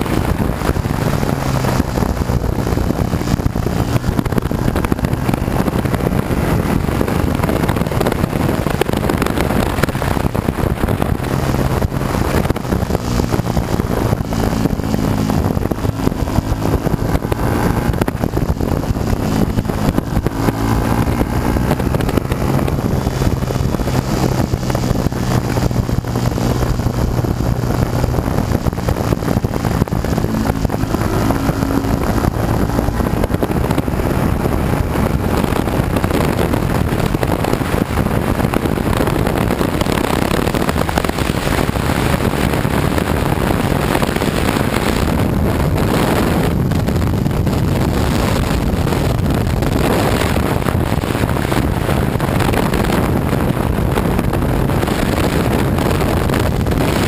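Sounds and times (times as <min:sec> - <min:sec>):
motorcycle engine running: 0:00.0 - 0:57.0
wind rush on microphone: 0:00.0 - 0:57.0.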